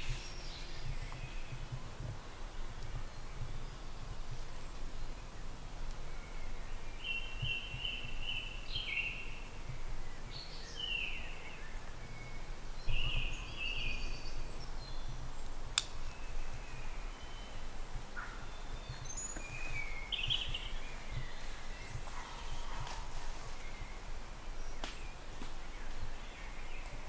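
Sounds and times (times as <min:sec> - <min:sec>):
birds singing: 0:00.0 - 0:27.0
sharp click: 0:15.8 - 0:16.0.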